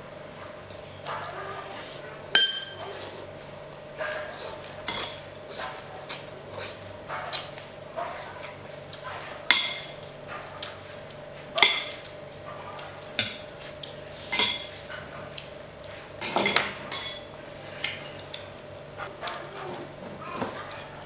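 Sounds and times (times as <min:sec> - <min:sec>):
cutlery clinking on dishes: 0:02.4 - 0:02.9, 0:16.2 - 0:18.5.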